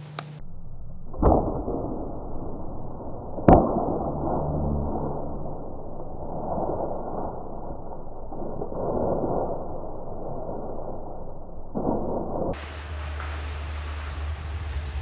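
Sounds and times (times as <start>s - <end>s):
small snap: 0.0s - 0.4s
bow shot sharp crack: 1.1s - 5.8s
low rustle: 4.2s - 15.0s.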